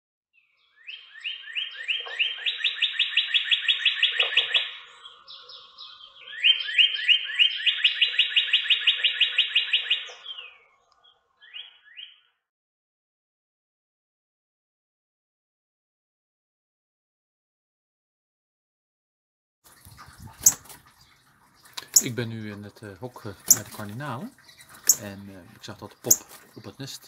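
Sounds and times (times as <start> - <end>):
bird singing slurred whistles: 0.7 - 10.6, 11.4 - 12.4, 24.8 - 25.1.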